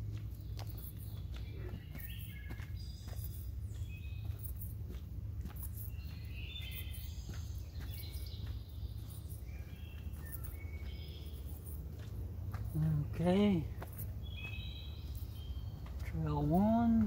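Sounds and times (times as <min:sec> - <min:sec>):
footsteps on dirt trail: 0:00.0 - 0:17.0
songbirds chirping and whistling: 0:00.0 - 0:17.0.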